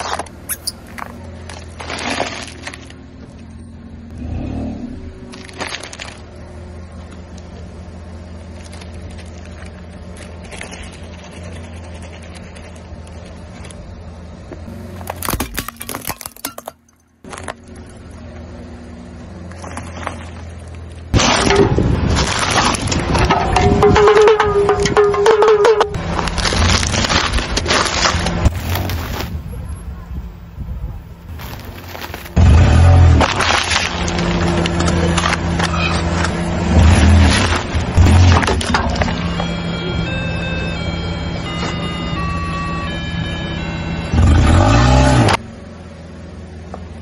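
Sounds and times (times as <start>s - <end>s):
low engine hum: 0.0s - 15.5s, 17.1s - 47.0s
tyre crushing crunchy packets: 14.7s - 16.7s, 26.0s - 29.4s, 31.3s - 39.2s.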